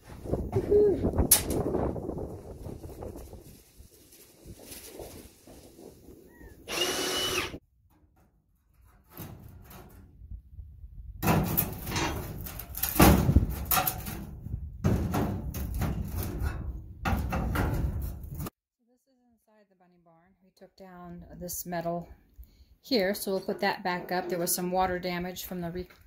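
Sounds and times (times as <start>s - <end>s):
tools scraping and clanking metal: 11.4s - 13.0s.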